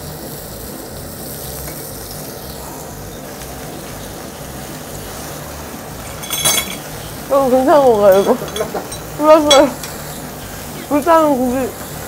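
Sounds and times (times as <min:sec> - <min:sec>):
pork sizzling on a grill: 0:00.0 - 0:12.0.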